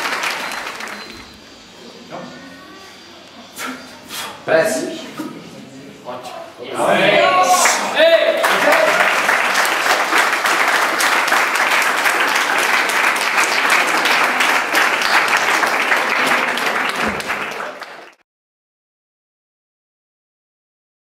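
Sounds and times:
people clapping: 0.0s - 1.5s, 7.4s - 18.2s.

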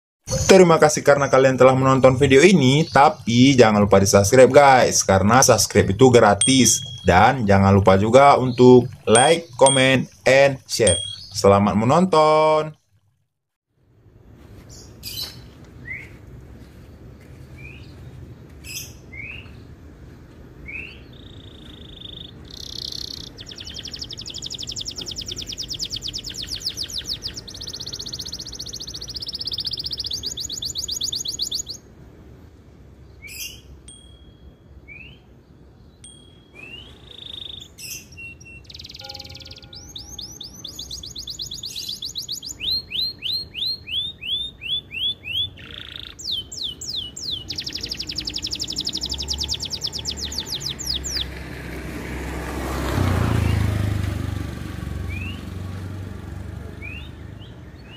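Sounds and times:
canary chirps and trills: 2.0s - 11.8s, 20.6s - 31.8s, 33.1s - 34.0s, 34.9s - 51.5s.

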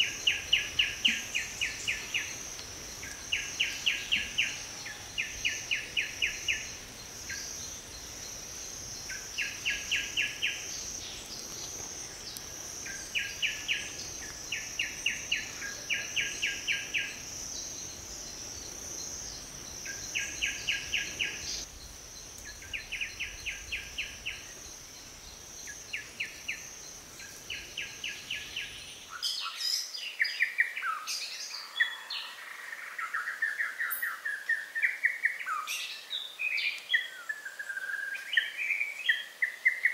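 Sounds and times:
high insect drone: 0.0s - 29.1s.

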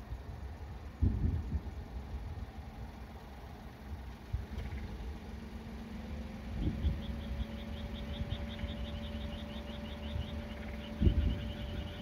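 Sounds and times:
low rumble and hum: 0.0s - 12.0s
high even chirping: 6.2s - 12.0s.

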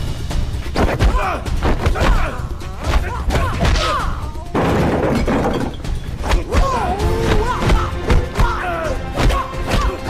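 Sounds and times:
background music: 0.0s - 10.0s.

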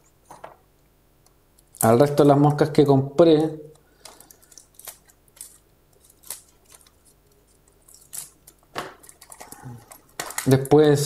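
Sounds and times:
scissors snipping: 4.5s - 7.0s.

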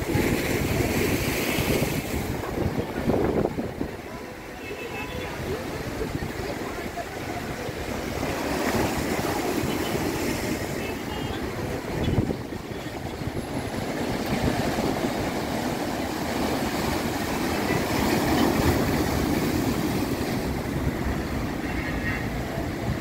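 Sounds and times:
surf breaking on rocks: 5.3s - 23.0s.

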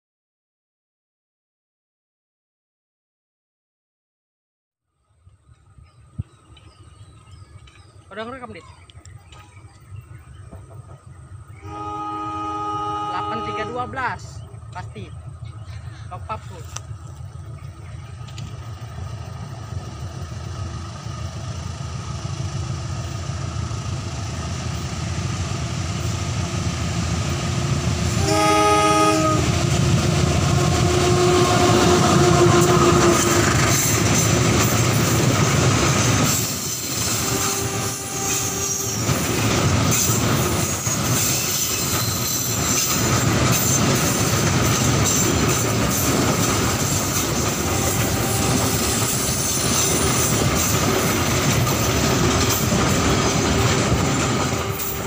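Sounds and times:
diesel locomotive engine: 5.0s - 55.0s
train wheel clatter: 5.4s - 11.6s, 14.4s - 21.5s, 27.9s - 55.0s
train horn: 11.6s - 14.2s, 28.1s - 33.8s, 37.0s - 39.1s, 47.5s - 50.0s, 53.4s - 55.0s
wheel squeal: 40.0s - 43.8s.

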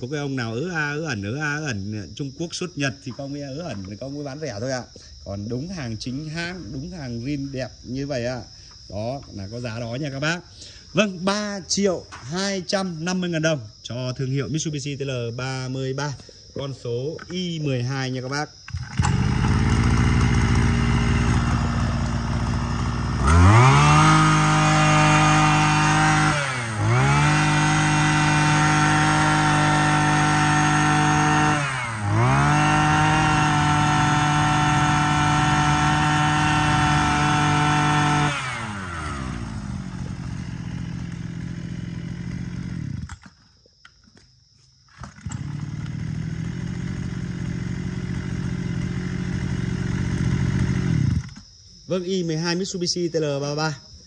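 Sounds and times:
brush cutter engine revving: 17.2s - 43.4s, 45.0s - 51.5s.

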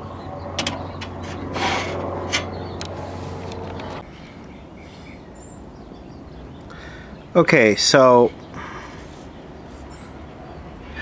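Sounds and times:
sharp clicks and light knocks: 0.6s - 1.5s
hands scraping metal chassis: 0.6s - 4.0s.

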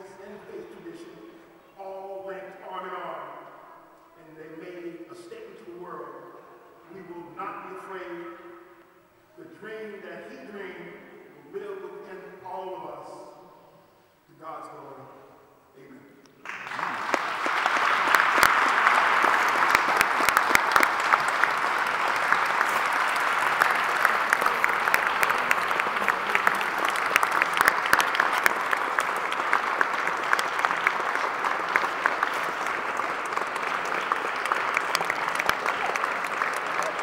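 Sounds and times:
audience applauding: 16.4s - 37.0s.

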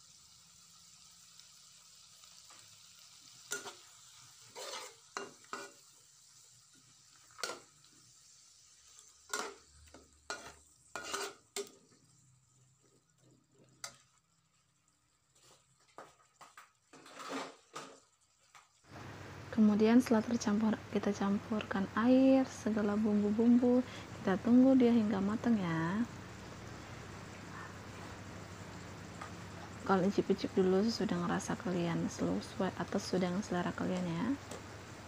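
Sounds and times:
greens sizzling in a wok: 0.0s - 35.0s
metal spatula scraping wok: 3.4s - 5.9s, 7.2s - 7.8s, 8.8s - 12.1s, 16.9s - 18.0s.

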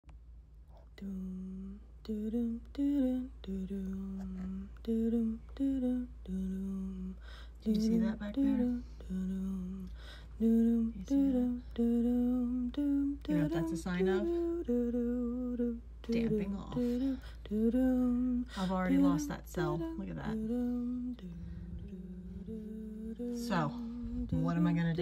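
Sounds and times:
person humming a slow tune: 1.0s - 25.0s.

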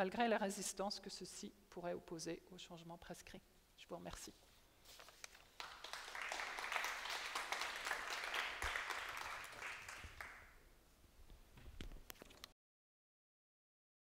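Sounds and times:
audience applauding: 5.6s - 10.6s.

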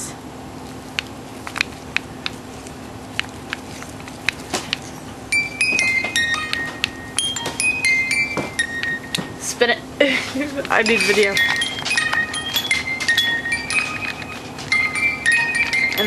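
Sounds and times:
music box plinking tune: 5.3s - 9.7s, 10.6s - 16.0s
baby rattle clicks: 10.7s - 16.0s.

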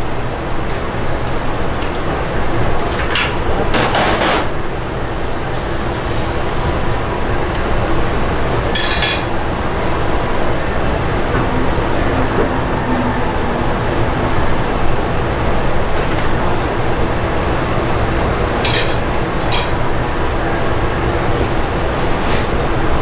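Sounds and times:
metal utensils and pots clattering: 8.5s - 9.3s.

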